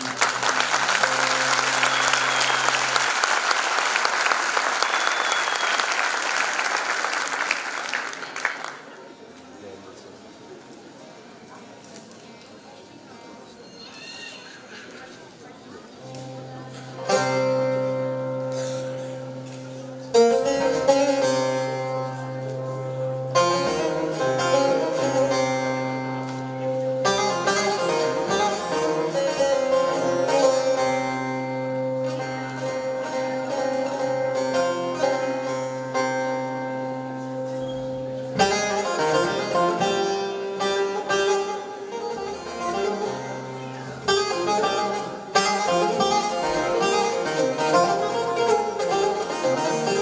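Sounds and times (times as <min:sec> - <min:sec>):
plucked long-necked lute melody: 0:00.0 - 0:03.0, 0:16.0 - 0:50.0.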